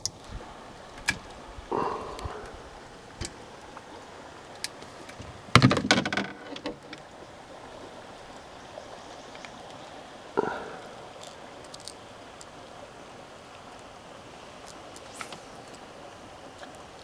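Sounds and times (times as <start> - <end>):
light clicks and knocks: 4.6 - 7.1
clatter of knocks and rattles: 5.5 - 7.0.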